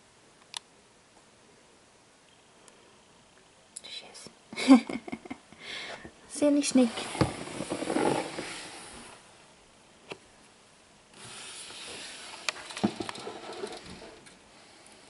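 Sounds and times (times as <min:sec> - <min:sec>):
click: 0:00.4 - 0:00.7
plastic tub scraping: 0:06.8 - 0:09.2.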